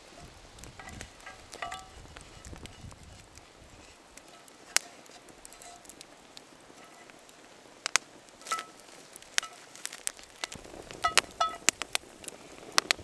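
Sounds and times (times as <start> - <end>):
campfire crackling and popping: 0.0 - 13.0
frying pan clinking: 0.8 - 2.1, 4.2 - 6.0, 6.7 - 7.2, 8.4 - 11.9.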